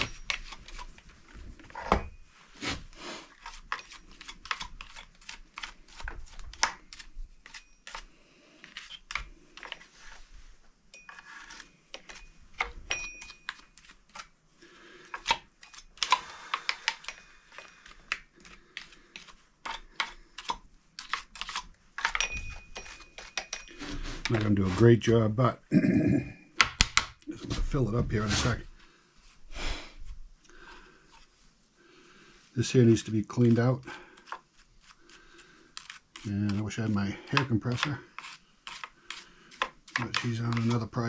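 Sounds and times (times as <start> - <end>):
hand tool clicking and scraping: 0.0 - 2.0, 2.6 - 10.2, 15.0 - 24.8, 34.2 - 41.0.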